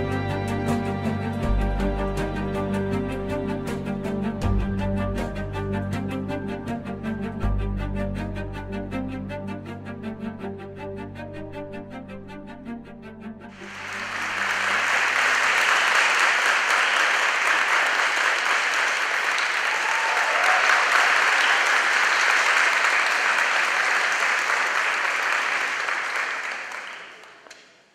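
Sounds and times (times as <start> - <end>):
audience applause: 13.5 - 27.9.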